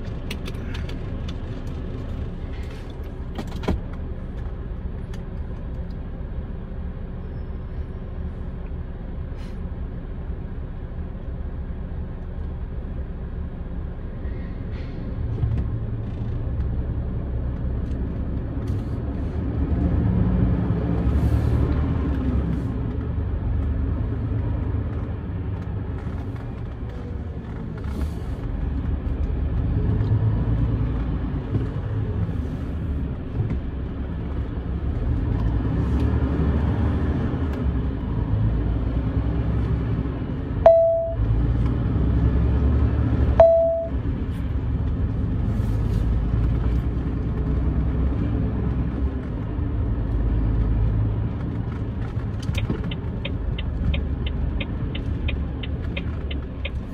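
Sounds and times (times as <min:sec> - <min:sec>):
truck engine and road noise: 0:00.0 - 0:56.9
short beeps: 0:40.6 - 0:41.3, 0:43.4 - 0:44.0.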